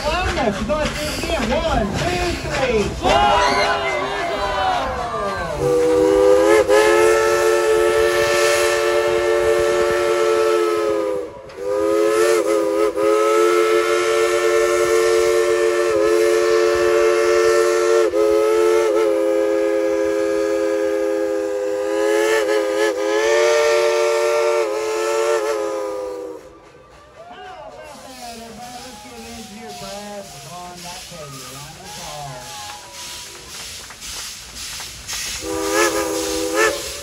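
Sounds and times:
steam locomotive whistle: 5.4s - 26.9s, 27.9s - 37.0s.

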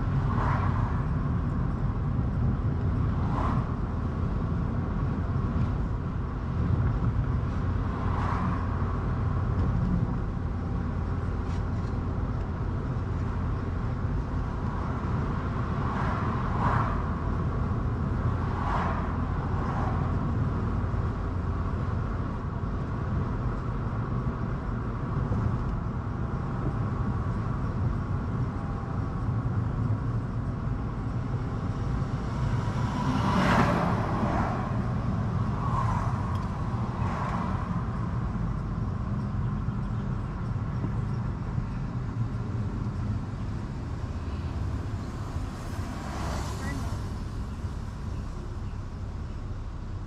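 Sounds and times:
car engine and tyre rumble: 0.0s - 50.0s.

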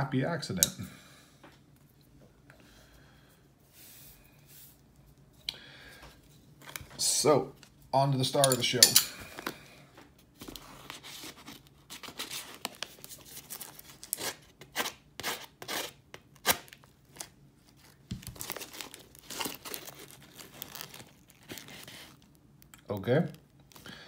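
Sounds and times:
packaging tearing and crinkling: 10.6s - 23.8s.

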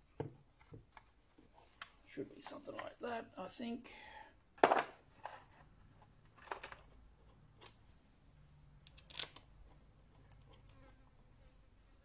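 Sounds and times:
metal parts clacking: 8.8s - 9.4s.

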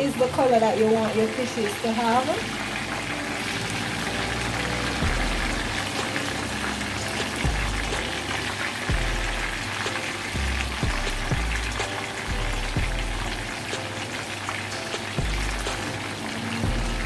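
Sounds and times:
fish sizzling in oil: 0.0s - 17.0s
background music with bass: 4.0s - 13.8s, 15.2s - 17.0s.

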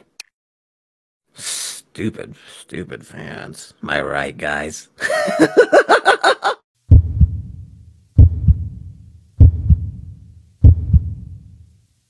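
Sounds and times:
person laughing: 5.0s - 6.6s
heartbeat thumps: 6.9s - 11.6s.

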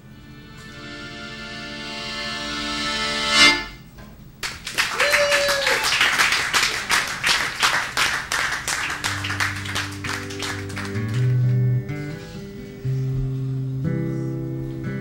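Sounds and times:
audience clapping: 4.4s - 11.9s.

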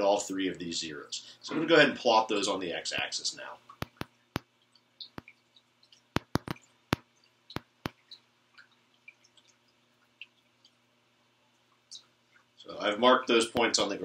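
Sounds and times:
marker tapping on whiteboard: 3.8s - 4.5s, 6.2s - 8.0s.

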